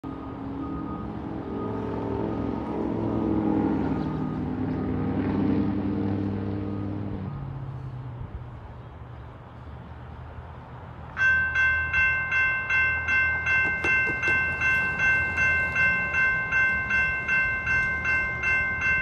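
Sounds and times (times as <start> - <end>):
steady engine drone: 0.0 - 11.2
cars driving past: 0.0 - 19.0.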